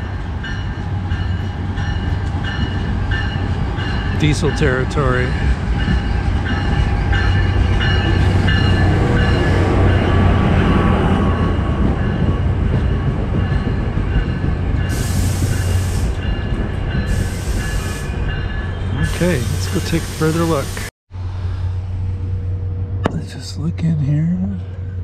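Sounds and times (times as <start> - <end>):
locomotive engine droning: 0.0 - 25.0
air hissing: 14.9 - 16.2, 17.1 - 18.1, 19.0 - 20.9.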